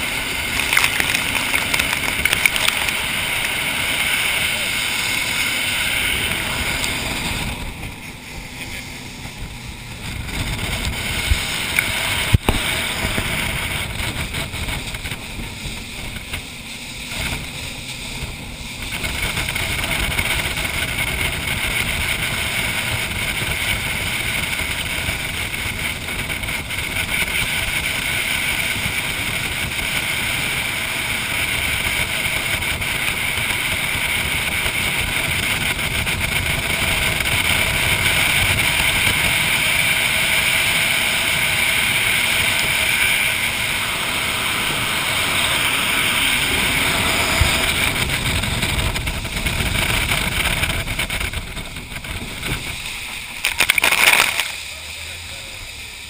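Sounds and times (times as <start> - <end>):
rushing water: 0.0 - 24.3
jet boat engine drone: 0.0 - 56.0.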